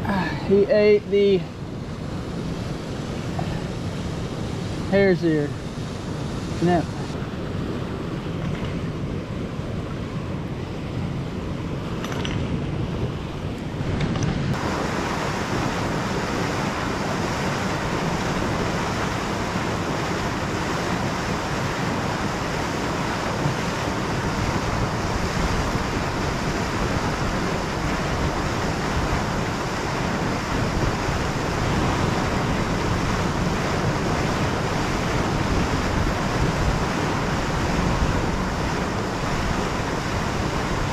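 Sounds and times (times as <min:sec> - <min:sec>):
wind noise on microphone: 0:00.0 - 0:40.9
river water flowing: 0:13.5 - 0:40.9.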